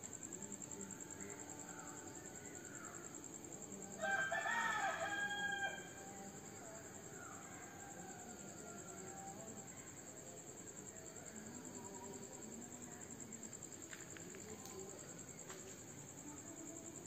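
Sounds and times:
crickets chirping: 0.0s - 17.0s
rooster crowing: 4.0s - 6.0s.

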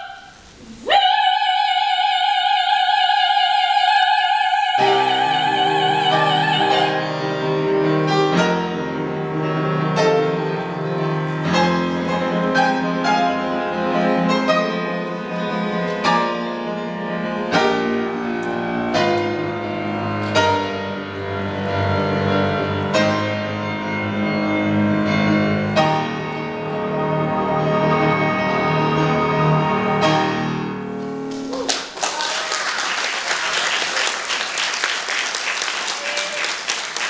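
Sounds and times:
grand piano chords and notes: 4.8s - 32.0s.

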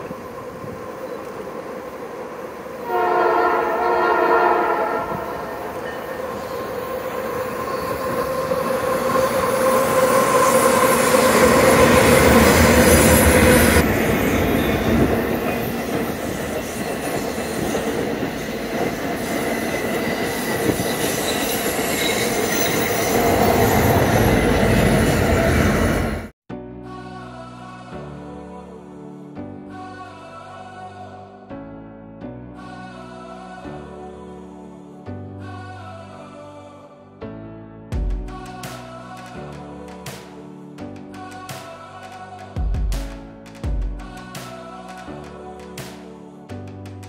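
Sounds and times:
freight train rumbling past: 0.0s - 26.3s
locomotive horn: 2.8s - 6.8s.

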